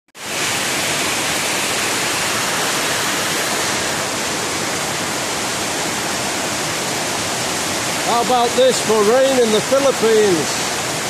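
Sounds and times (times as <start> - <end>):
heavy rain: 0.2 - 11.0.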